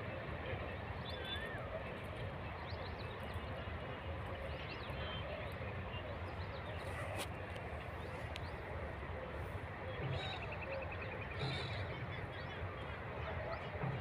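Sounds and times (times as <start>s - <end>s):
faint voices: 0.0s - 14.0s
outdoor background noise: 0.0s - 14.0s.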